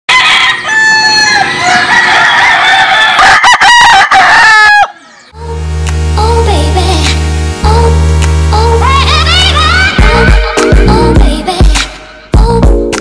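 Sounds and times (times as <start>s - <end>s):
roosters crowing: 0.1s - 5.4s
intro music with steady bass: 5.4s - 13.0s.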